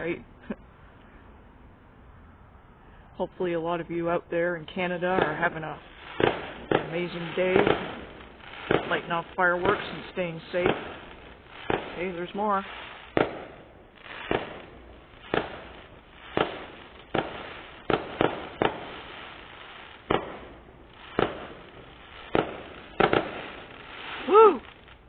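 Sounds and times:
firework bangs: 4.7 - 25.0
firework hiss: 5.0 - 25.0.

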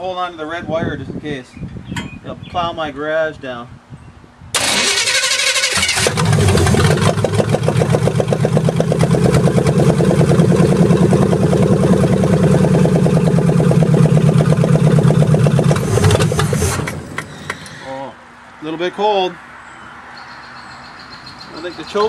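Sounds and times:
loud engine running: 4.6 - 18.0
starter cranking engine: 4.6 - 18.0.

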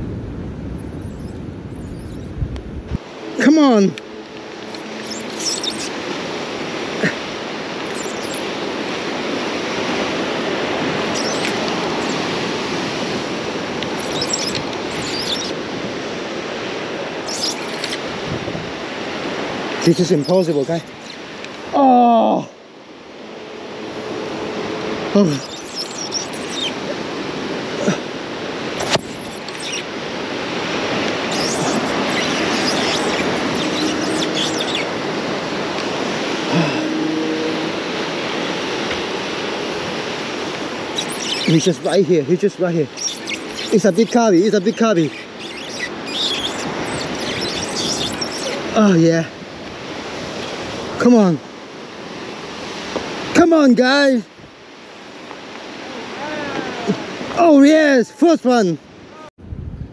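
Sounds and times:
faint high chirps: 0.8 - 2.3, 4.7 - 6.0, 7.8 - 8.5, 11.1 - 12.2, 14.0 - 15.5, 17.3 - 18.0, 25.2 - 26.9, 28.9 - 29.9, 31.3 - 34.9, 40.9 - 42.0, 42.9 - 48.6
high scratchy sounds: 4.7 - 6.0, 7.8 - 8.5, 11.0 - 12.3, 13.9 - 15.6, 17.3 - 18.0, 25.2 - 26.9, 28.8 - 29.9, 31.3 - 35.0, 40.7 - 48.7
surf breaking on rocks: 26.5 - 54.2.

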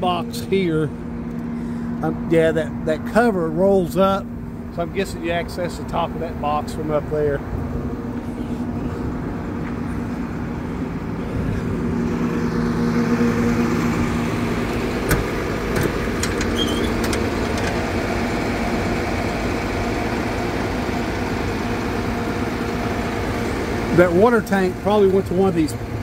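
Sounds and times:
truck engine idling: 0.0 - 26.0
metal compartment door unlatching: 15.0 - 17.8.

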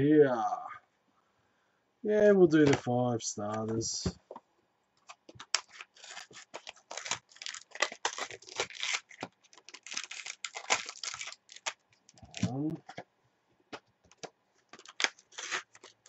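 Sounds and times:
wrapper tearing and crinkling: 5.3 - 12.6, 14.1 - 16.0.

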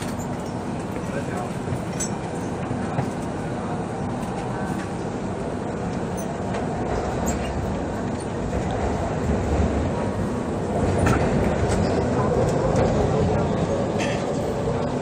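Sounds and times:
metro train rumble: 0.0 - 15.0.

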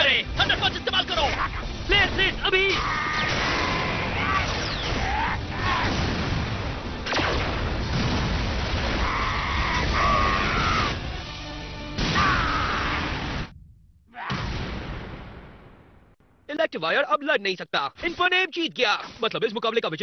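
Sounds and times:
sharp crack: 3.1 - 9.1, 12.0 - 13.5
high held cries: 9.0 - 11.0, 12.1 - 13.2.

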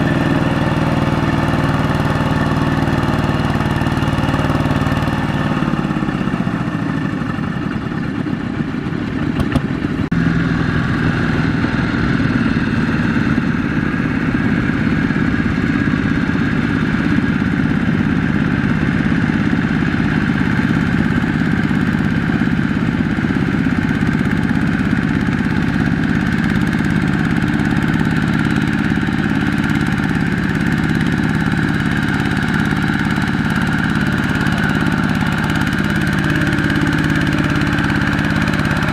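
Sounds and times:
diesel tractor engines running: 0.0 - 38.9.

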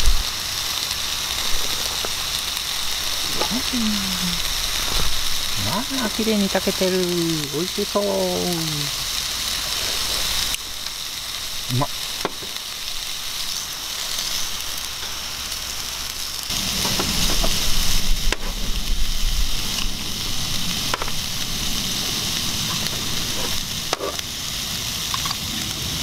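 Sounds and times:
meat sizzling on a grill plate: 0.0 - 26.0.

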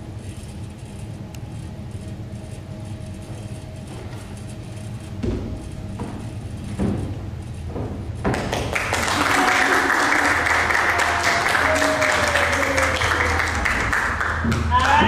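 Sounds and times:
low room hum: 0.0 - 15.0.

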